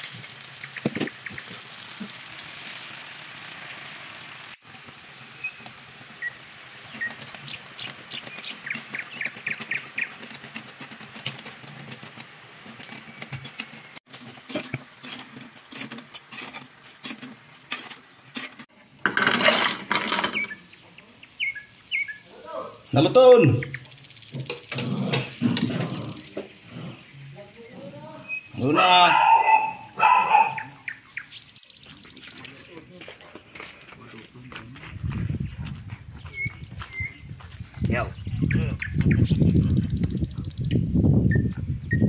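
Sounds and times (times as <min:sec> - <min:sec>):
food deep-frying in oil: 0:00.0 - 0:28.6, 0:30.6 - 0:32.7.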